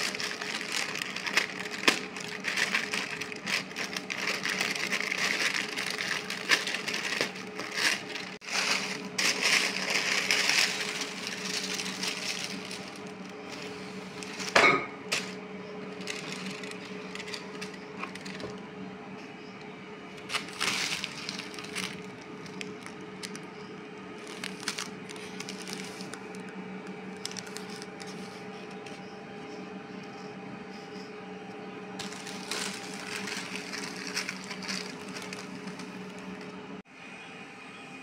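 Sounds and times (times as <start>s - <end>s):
tissue paper rustling: 0.0s - 18.5s, 20.2s - 23.5s, 24.2s - 26.4s, 27.1s - 28.5s, 32.0s - 36.5s
steady low hum: 0.0s - 38.0s.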